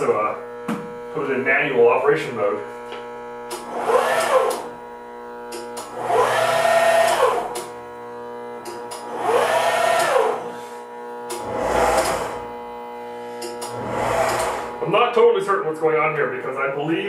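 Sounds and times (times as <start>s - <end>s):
steady drive hum: 0.0s - 17.0s
sharp machine clicks: 3.5s - 4.7s
servo motors whining: 3.5s - 4.8s, 5.4s - 14.8s.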